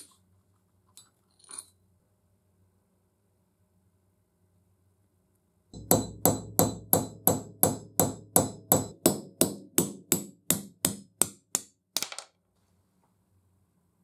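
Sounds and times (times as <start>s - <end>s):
hammer striking steel punch: 5.8s - 11.8s.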